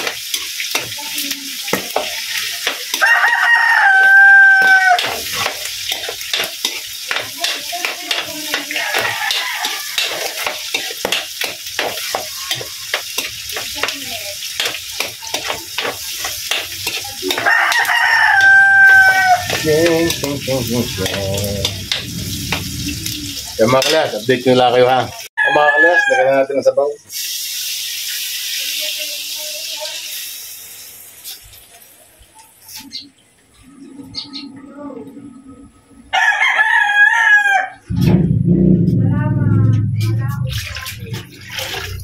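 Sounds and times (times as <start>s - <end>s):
food sizzling in a wok: 0.0s - 25.5s, 27.0s - 33.1s, 40.1s - 42.0s
rooster crowing: 3.0s - 5.2s, 8.7s - 10.5s, 17.4s - 19.7s, 25.4s - 26.5s, 36.0s - 37.9s
metal spatula scraping wok: 4.6s - 24.2s.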